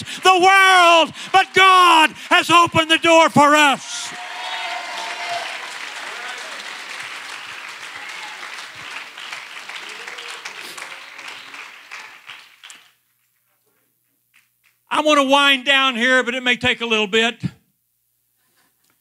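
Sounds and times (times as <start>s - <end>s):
congregation applauding: 0.0s - 13.1s.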